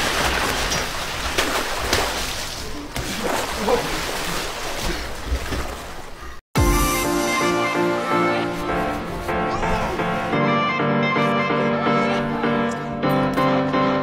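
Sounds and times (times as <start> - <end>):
water splashing and sloshing: 0.0 - 6.4.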